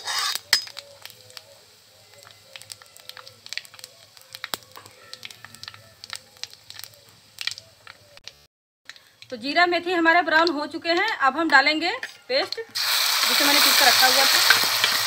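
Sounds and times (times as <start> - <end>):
metal ladle stirring in pan: 0.0 - 1.1
seeds popping in hot oil: 0.0 - 15.0.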